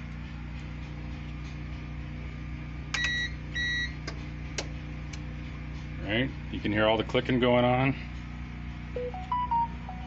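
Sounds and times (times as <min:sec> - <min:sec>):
steady low hum: 0:00.0 - 0:10.0
short high beeps: 0:09.0 - 0:10.0.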